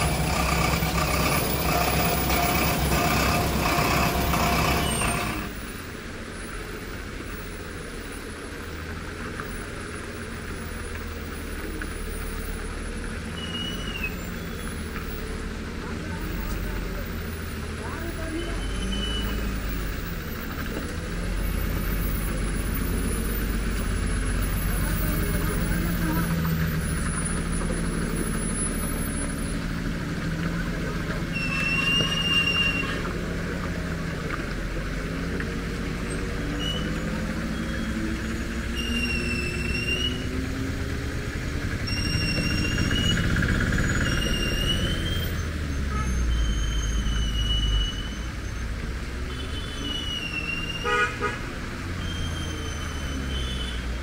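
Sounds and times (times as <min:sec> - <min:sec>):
lorry diesel engine pulling away: 0:00.0 - 0:05.9, 0:09.5 - 0:49.3
cars driving past: 0:00.0 - 0:54.0
short high whistle-like tones: 0:31.3 - 0:33.1, 0:38.7 - 0:40.4, 0:41.8 - 0:48.6, 0:49.5 - 0:50.9, 0:52.0 - 0:53.8.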